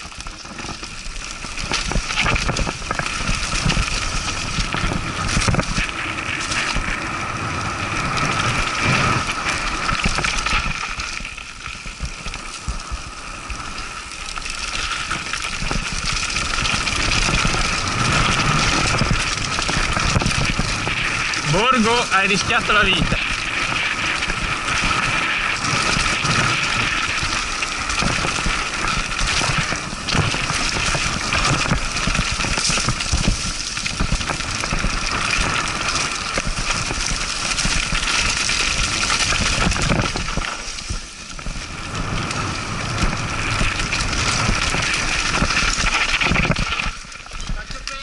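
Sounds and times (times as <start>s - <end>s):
bike rattling and knocking: 0.0s - 13.1s, 14.1s - 48.0s
wind rush on microphone: 0.0s - 48.0s
tyres on dirt and leaves: 13.5s - 48.0s.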